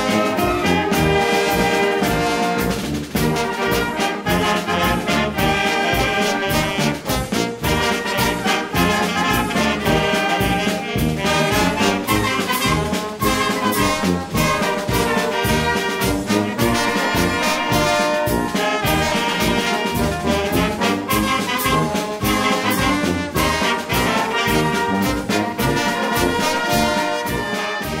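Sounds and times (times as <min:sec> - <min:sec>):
brass band playing: 0:00.0 - 0:28.0
steady drum beat: 0:00.0 - 0:28.0.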